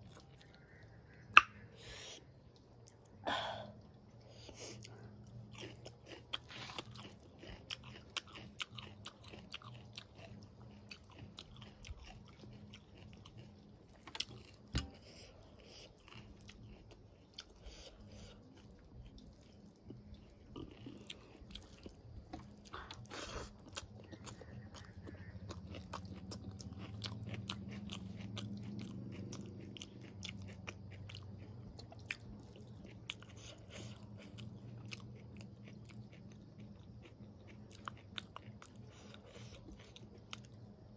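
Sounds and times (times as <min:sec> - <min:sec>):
person chewing food: 0:00.0 - 0:40.9
wet mouth clicks: 0:01.3 - 0:01.6.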